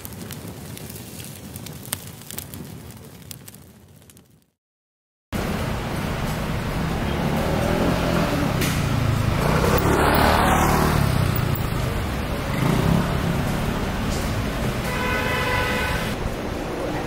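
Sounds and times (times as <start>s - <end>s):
vehicle road noise rushing: 5.4s - 17.0s.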